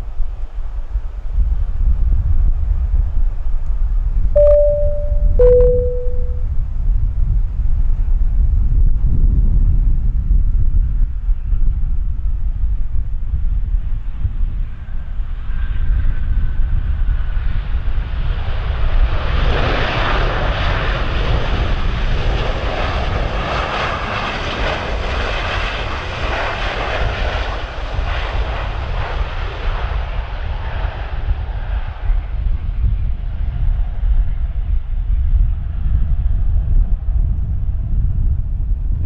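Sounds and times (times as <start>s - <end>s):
wind rumble on microphone: 0.0s - 5.5s, 6.6s - 39.0s
jet airliner engine noise: 8.9s - 39.0s.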